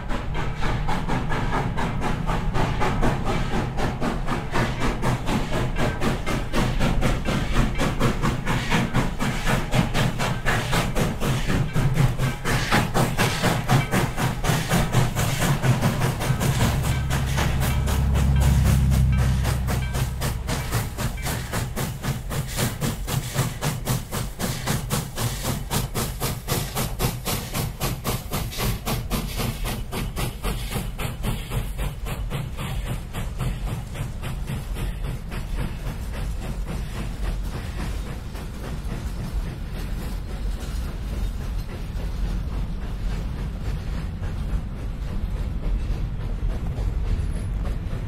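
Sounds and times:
rail cars rumbling: 0.0 - 48.0
steam locomotive chuffing: 0.0 - 48.0.

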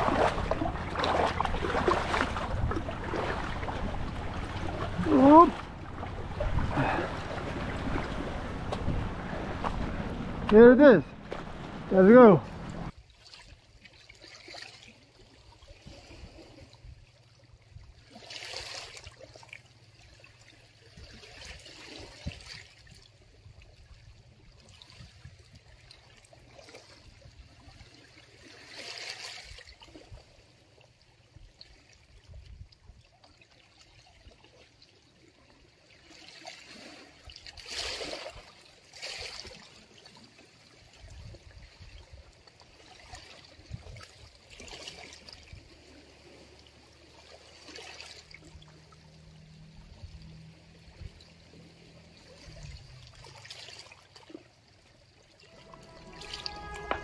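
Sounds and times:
water gushes: 0.0 - 12.9, 42.5 - 57.0
sea water sloshing and trickling: 0.0 - 57.0.

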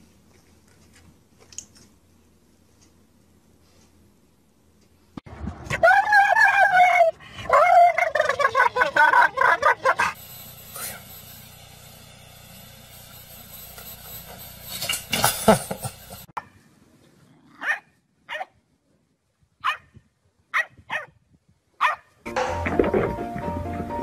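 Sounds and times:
dog barking: 9.4 - 10.2, 17.6 - 18.6, 19.6 - 19.9, 20.5 - 21.1, 21.8 - 22.1
loud burst of noise: 10.2 - 16.3.

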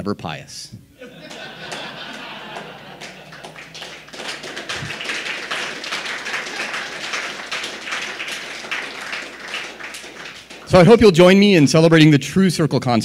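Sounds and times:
audience applause: 1.1 - 11.0.

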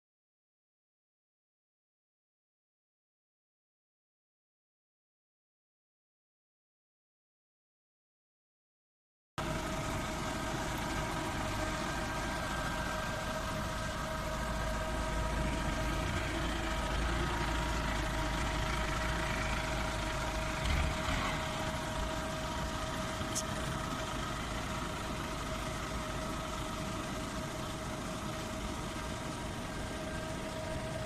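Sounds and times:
constant whine: 9.4 - 31.0
forklift engine running: 9.4 - 31.0.

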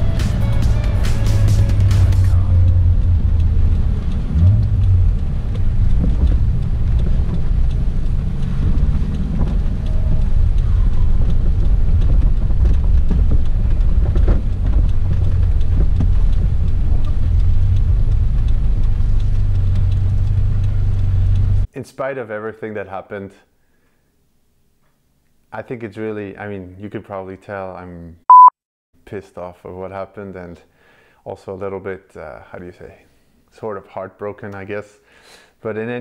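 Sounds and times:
car engine droning at low revs: 0.3 - 21.7.

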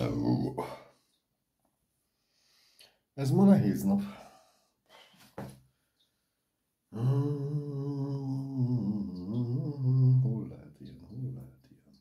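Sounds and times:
man humming low note: 7.0 - 10.4.

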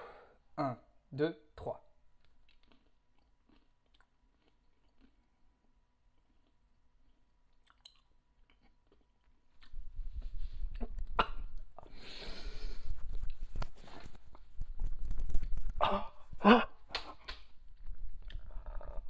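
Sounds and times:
faint chewing: 2.2 - 15.7, 17.2 - 19.0
huffs and gasps: 11.8 - 13.1, 15.8 - 17.2
clip-on microphone rustle: 12.8 - 15.8.

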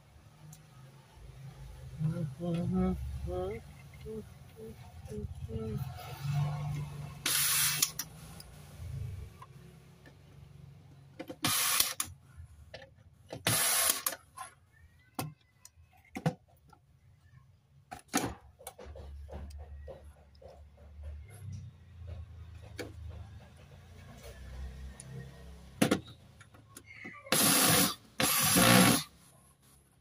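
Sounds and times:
sharp clicks and knocks: 17.9 - 25.2.

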